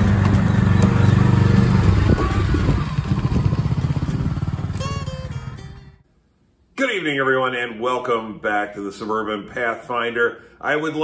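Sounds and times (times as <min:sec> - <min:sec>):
utility vehicle engine driving past: 0:00.0 - 0:05.9.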